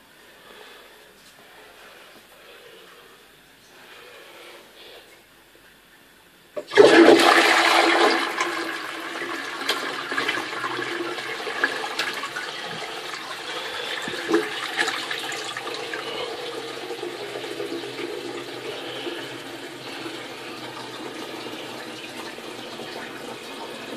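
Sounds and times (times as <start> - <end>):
toilet flush click: 6.6 - 23.9
toilet flushing water: 6.6 - 23.9.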